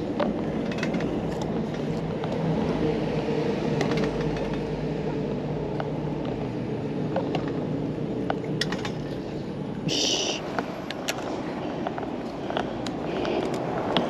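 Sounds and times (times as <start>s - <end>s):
road traffic rumble: 0.0s - 14.0s
high-pitched hiss: 9.9s - 10.4s.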